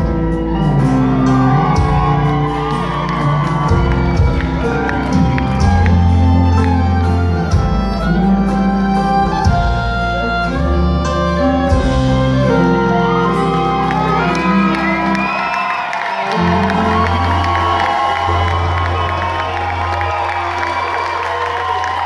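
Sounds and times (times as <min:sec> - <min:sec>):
sustained bass notes: 0:00.0 - 0:15.4
live country band playing: 0:00.0 - 0:22.0.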